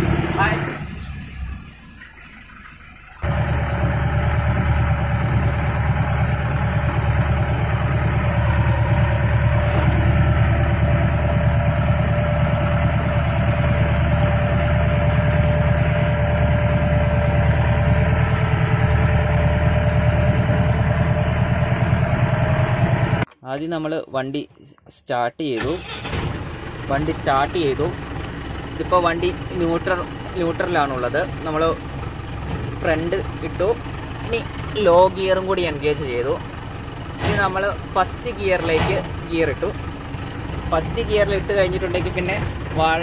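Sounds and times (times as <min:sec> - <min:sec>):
car engine droning with whine: 0:00.0 - 0:23.3, 0:25.6 - 0:43.0.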